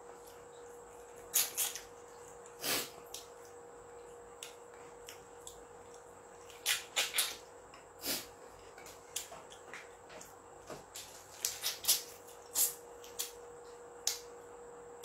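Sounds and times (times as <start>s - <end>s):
faint steady hum: 0.0s - 15.0s
mouth smacking and sucking: 1.3s - 1.9s, 11.4s - 13.3s.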